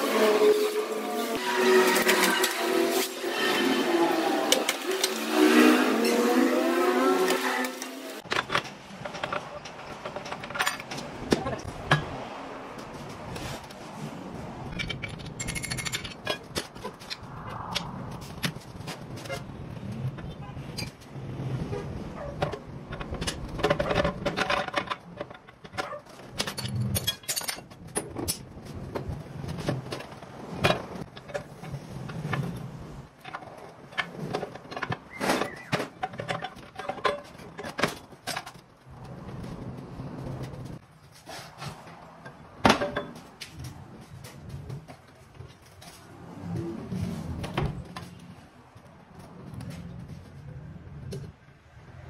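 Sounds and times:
metal tools clinking and scraping: 0:07.2 - 0:12.2, 0:14.7 - 0:17.2, 0:22.4 - 0:28.4
metal parts clinking: 0:14.7 - 0:16.8, 0:26.3 - 0:28.4.

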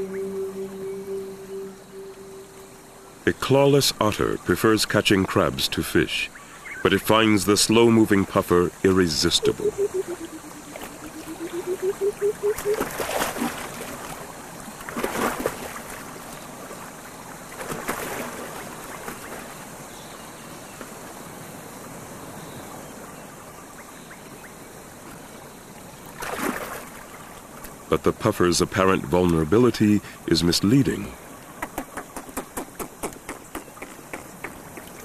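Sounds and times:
wavering pulsing tone: 0:00.0 - 0:03.4, 0:09.2 - 0:12.8
river water running: 0:00.0 - 0:35.0
water splashes: 0:06.8 - 0:19.9, 0:25.7 - 0:29.7.

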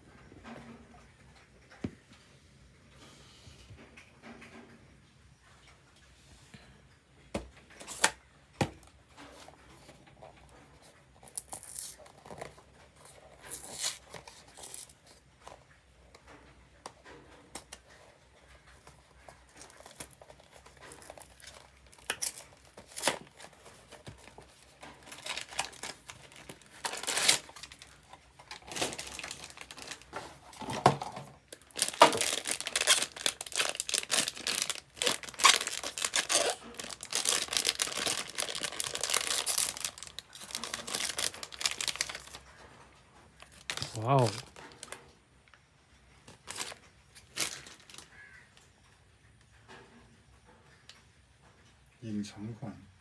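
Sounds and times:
foil bag crinkling and tearing: 0:11.2 - 0:15.2, 0:17.4 - 0:42.7, 0:43.4 - 0:45.0, 0:46.2 - 0:48.4.

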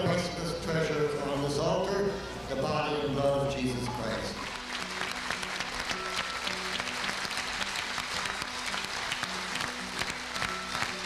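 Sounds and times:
music of held notes: 0:04.0 - 0:11.0
crowd applauding: 0:04.4 - 0:11.0.

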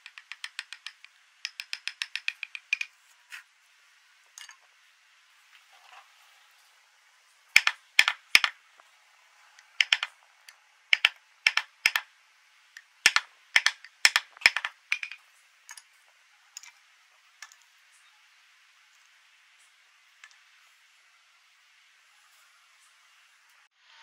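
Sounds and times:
carving tool clicking on wood: 0:00.0 - 0:02.9, 0:07.6 - 0:08.6, 0:09.7 - 0:10.1, 0:10.9 - 0:12.1, 0:12.8 - 0:15.2.

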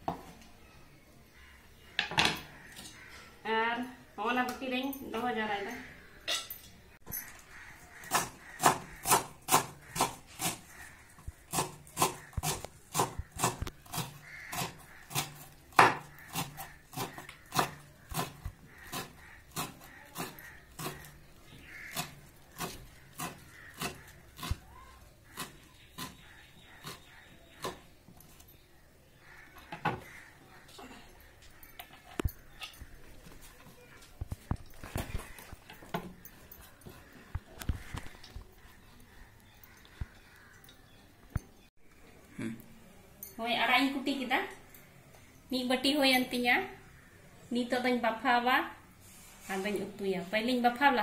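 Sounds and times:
knife chopping on wooden board: 0:08.0 - 0:10.6, 0:21.9 - 0:24.6.

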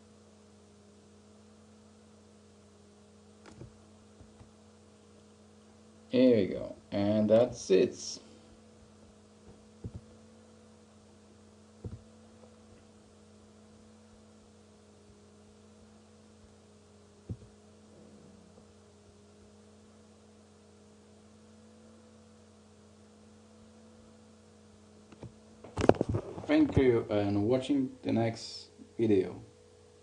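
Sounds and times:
low electrical hum: 0:00.0 - 0:30.0
soft low thumps: 0:09.4 - 0:10.2, 0:11.8 - 0:12.8, 0:17.2 - 0:18.6.

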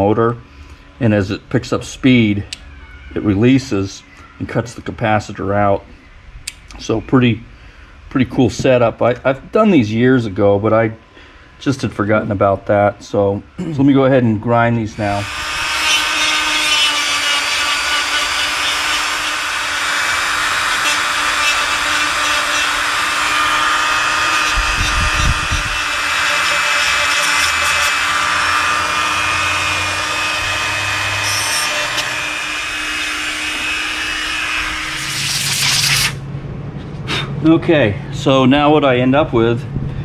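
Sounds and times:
rotary tool grinding: 0:15.2 - 0:36.2.

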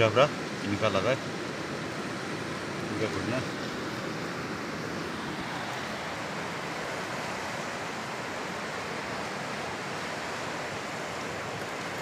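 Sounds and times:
river rushing over stones: 0:00.0 - 0:12.0.

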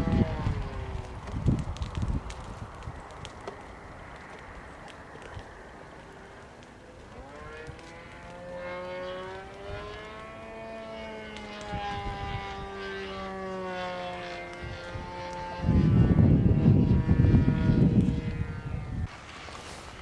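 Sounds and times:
model airplane motor droning: 0:00.0 - 0:01.8, 0:05.4 - 0:19.1.

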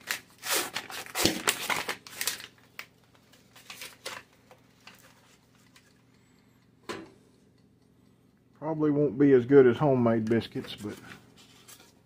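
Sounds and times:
cardboard and paper tearing: 0:00.0 - 0:02.5.

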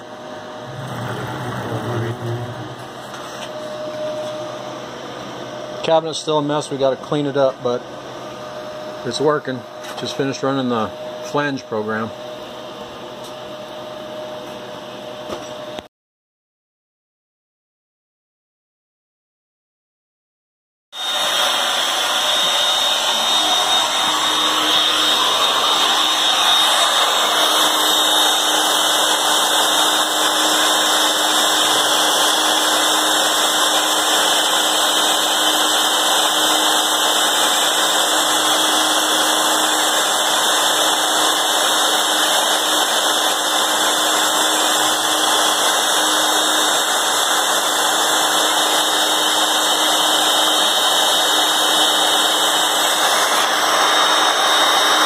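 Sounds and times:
router motor whining: 0:00.5 - 0:04.4, 0:21.0 - 0:52.2.

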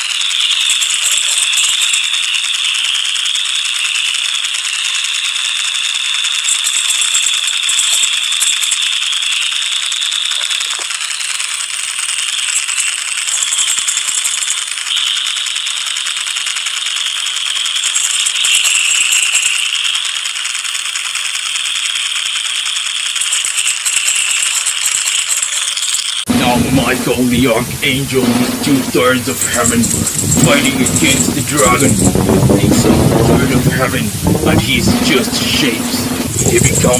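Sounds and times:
high-pitched rattling buzz: 0:00.0 - 0:36.9.

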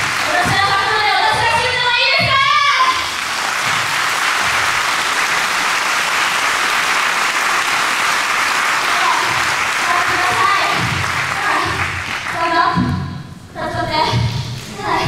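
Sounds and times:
audience applauding: 0:00.0 - 0:01.2, 0:02.9 - 0:12.5.

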